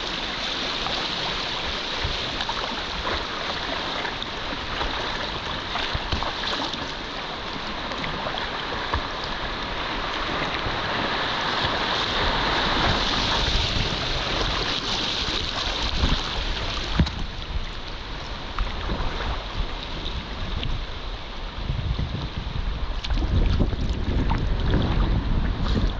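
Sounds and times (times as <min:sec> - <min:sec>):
paddle splashes: 0:00.0 - 0:21.5, 0:22.8 - 0:25.9
river water rushing: 0:00.0 - 0:21.8
wind buffeting microphone: 0:07.7 - 0:25.9
low rumble: 0:15.4 - 0:25.9.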